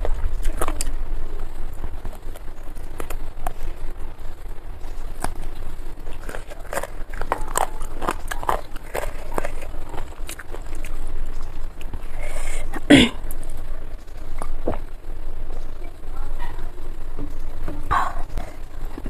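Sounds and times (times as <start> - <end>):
person chewing with mouth clicks: 0.0 - 1.0, 4.9 - 13.6, 14.3 - 14.9.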